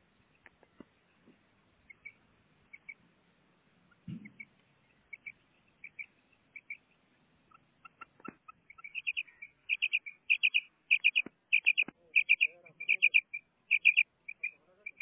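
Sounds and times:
quail calling: 1.8 - 3.0, 3.8 - 15.0
faint knocks: 4.0 - 4.5.

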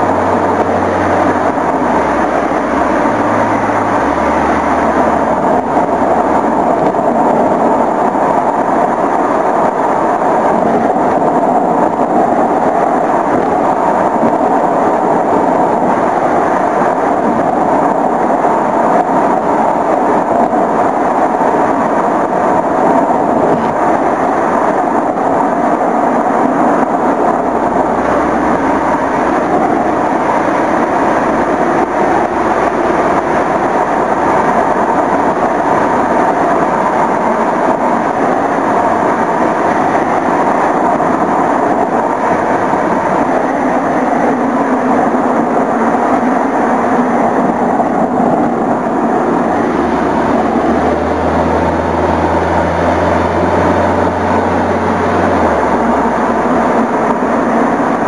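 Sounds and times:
low hum: 0.0 - 58.0
wind and road noise: 0.0 - 58.0.

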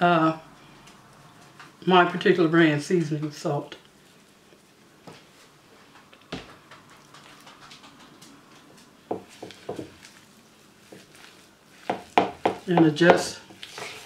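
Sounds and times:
spatula stirring and scraping: 6.8 - 14.0
spatula knocking against bowl: 11.8 - 13.3.

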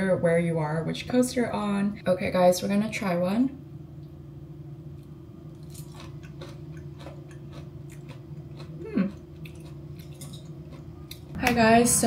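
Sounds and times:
person chewing with soft crunching: 4.9 - 11.4
person humming: 8.8 - 9.2.

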